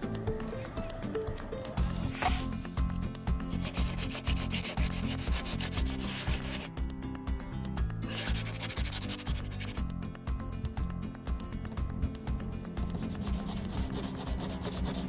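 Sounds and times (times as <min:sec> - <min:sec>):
sandpaper scratching: 0:03.5 - 0:06.7, 0:08.0 - 0:09.8, 0:13.0 - 0:15.0.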